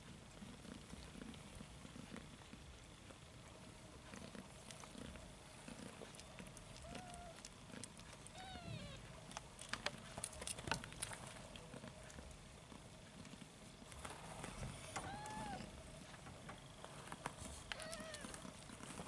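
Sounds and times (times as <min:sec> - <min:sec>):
kittens mewing: 0:06.8 - 0:07.5, 0:08.2 - 0:09.1, 0:14.9 - 0:15.7, 0:17.7 - 0:18.4.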